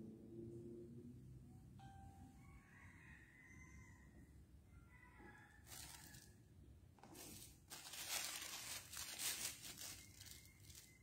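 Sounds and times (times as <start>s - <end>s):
rustling and crinkling: 5.6s - 6.4s, 7.0s - 11.0s.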